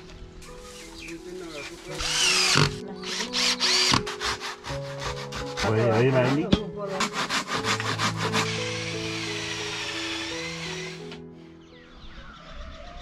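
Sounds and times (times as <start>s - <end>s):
soft background music: 0.0s - 13.0s
hand saw cutting wood: 1.8s - 11.2s.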